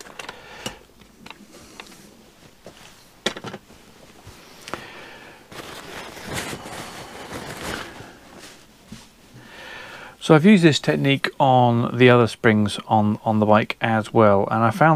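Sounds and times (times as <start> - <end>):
metal parts clicking and knocking: 0.0 - 1.9
paper towel rustling: 5.4 - 9.3.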